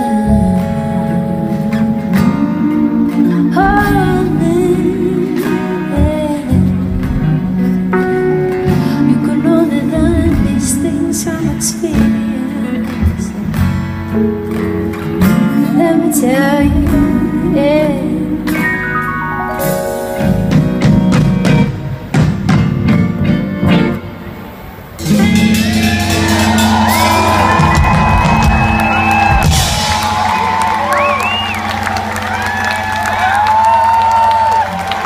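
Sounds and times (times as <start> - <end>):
live band playing: 0.0 - 35.0
crowd cheering and whooping: 25.2 - 35.0.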